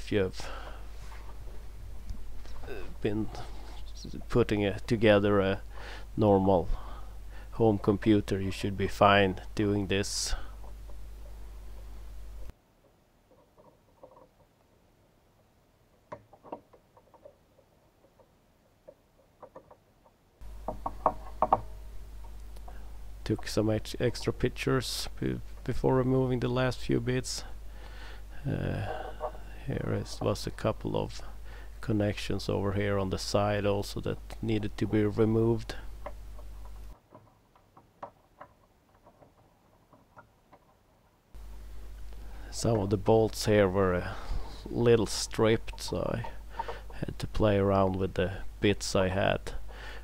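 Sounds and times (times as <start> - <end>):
steady low hum: 0.0 - 13.3, 20.3 - 37.0, 41.3 - 50.0.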